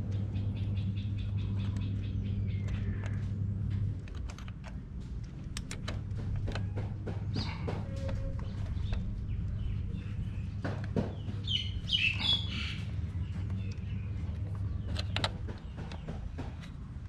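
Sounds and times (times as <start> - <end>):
steady low hum: 0.0 - 17.0
bird chirping: 0.2 - 3.2, 7.3 - 16.7.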